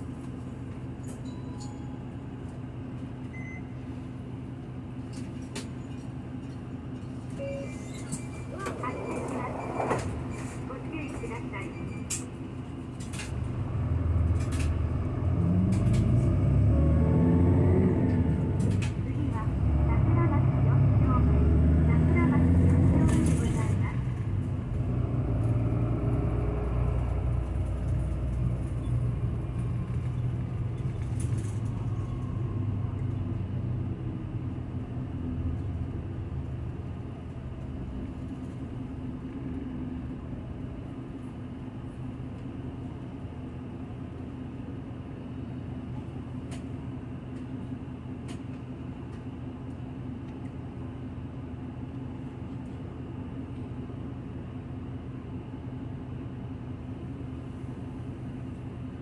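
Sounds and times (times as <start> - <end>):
bus engine rumble: 0.0 - 59.0.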